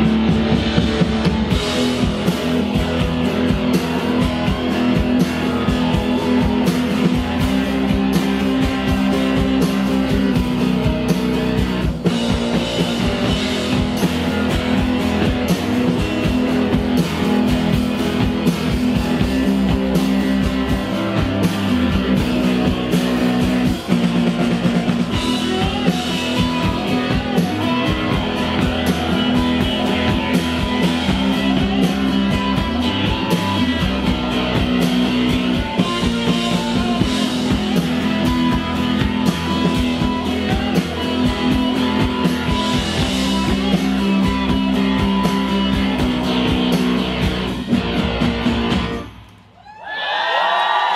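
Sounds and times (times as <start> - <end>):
live rock band playing: 0.0 - 49.6.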